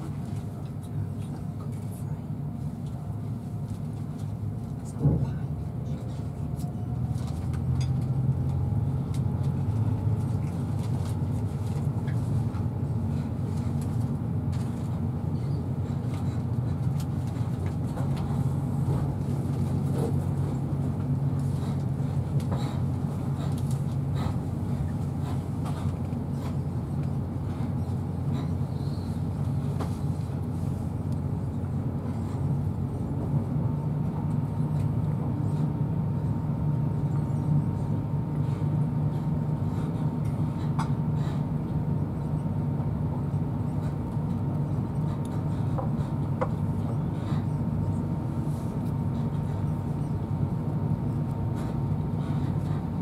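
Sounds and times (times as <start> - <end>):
train wheels rumbling on rails: 0.0 - 53.0.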